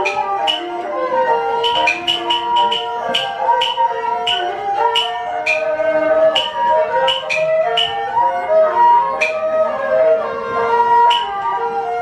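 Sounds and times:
flute-like wind melody: 0:00.0 - 0:12.0
clapper clicks: 0:01.6 - 0:08.0.

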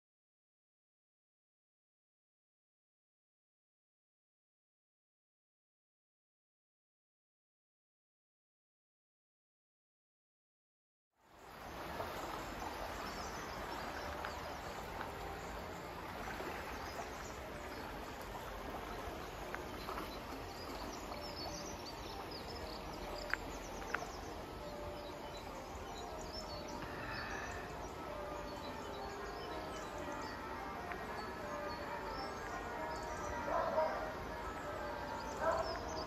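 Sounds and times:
small birds chirping: 0:16.7 - 0:36.0.

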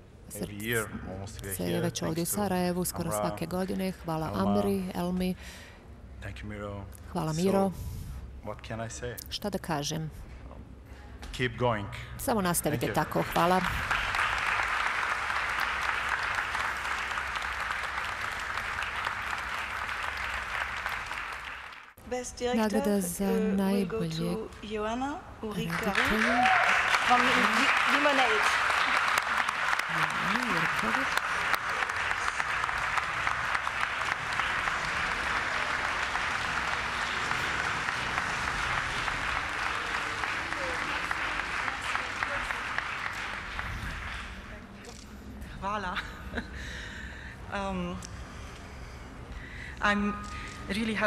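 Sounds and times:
audience applauding: 0:12.7 - 0:22.0, 0:25.6 - 0:44.6.

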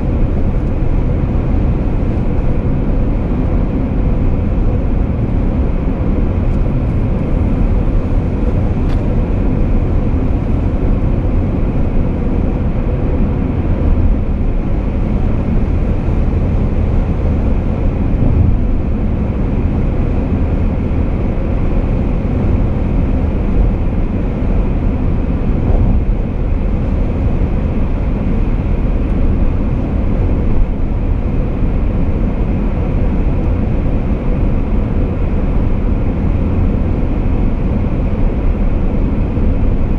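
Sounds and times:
car road and wind noise: 0:00.0 - 0:39.9.

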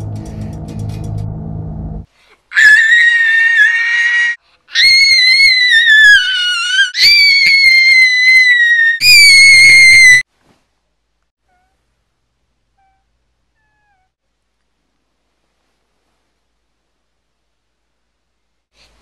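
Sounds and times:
music: 0:00.0 - 0:02.1
girl screaming: 0:02.5 - 0:10.2.

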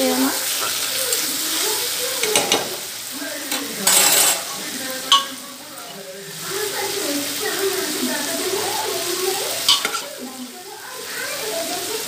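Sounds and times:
food sizzling in oil: 0:00.0 - 0:12.0
steel spoon scraping a pan: 0:03.5 - 0:05.4, 0:09.6 - 0:10.2.

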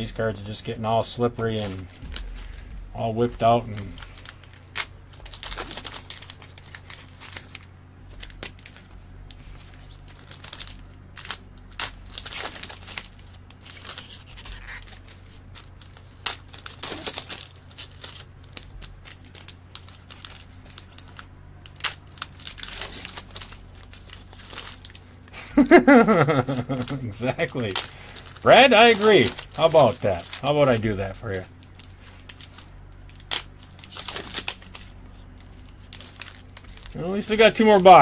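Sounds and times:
low steady hum: 0:00.0 - 0:38.0
wrappers crinkling and tearing: 0:00.0 - 0:38.0.

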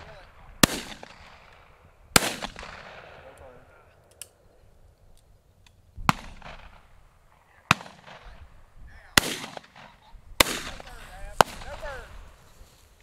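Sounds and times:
shotgun shots echoing: 0:00.0 - 0:03.8, 0:06.0 - 0:08.5, 0:09.1 - 0:12.1.

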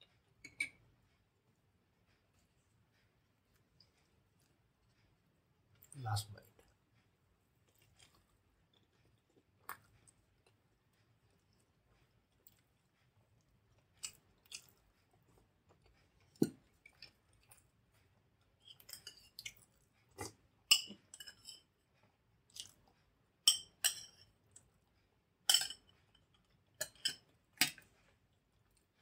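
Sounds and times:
spoon clinking against bowl: 0:25.5 - 0:25.8.

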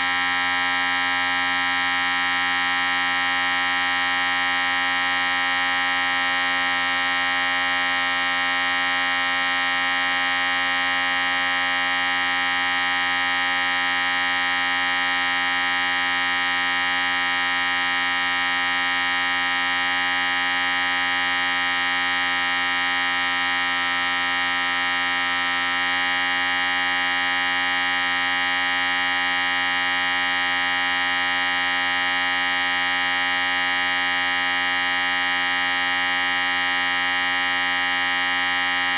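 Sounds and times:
electric hair clippers running: 0:00.0 - 0:38.9.

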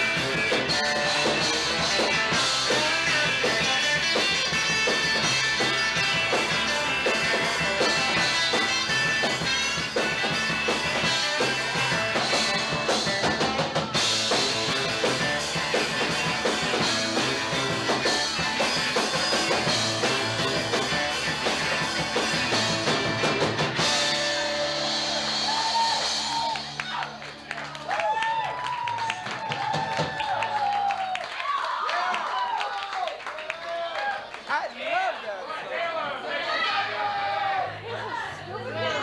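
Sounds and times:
bass guitar: 0:00.0 - 0:30.4
electric guitars: 0:00.0 - 0:30.4
drum kit: 0:00.0 - 0:30.8.

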